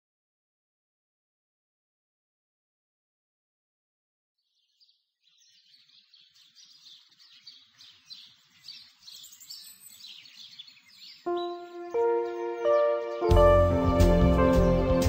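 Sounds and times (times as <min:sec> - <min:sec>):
birds chirping: 0:04.4 - 0:15.0.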